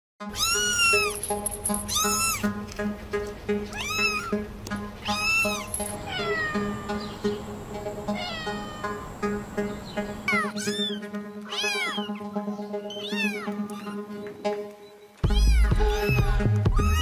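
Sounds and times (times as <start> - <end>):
cats meowing: 0.3 - 1.2, 1.8 - 2.5, 3.7 - 7.5, 8.1 - 9.4, 10.2 - 14.1, 15.2 - 17.0
music with pulsing beat: 13.6 - 17.0.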